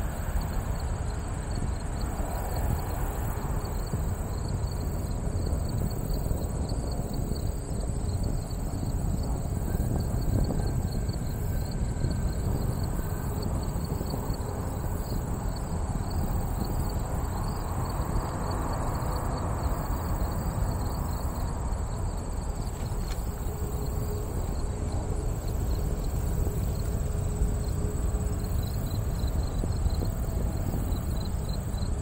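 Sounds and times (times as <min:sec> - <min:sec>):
insects chirping: 0:00.0 - 0:32.0
steady high buzz: 0:00.0 - 0:32.0
steady low rumble: 0:00.0 - 0:32.0.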